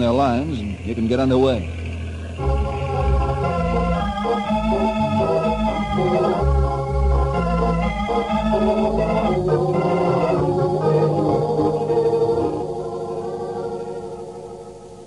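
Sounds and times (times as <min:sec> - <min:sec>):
organ playing held chords: 0:00.0 - 0:15.0.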